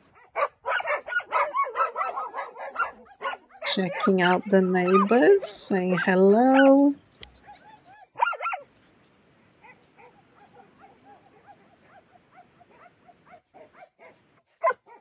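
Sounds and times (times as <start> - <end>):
dogs barking: 0.1 - 5.4, 6.0 - 6.8, 7.4 - 8.6, 9.6 - 15.0.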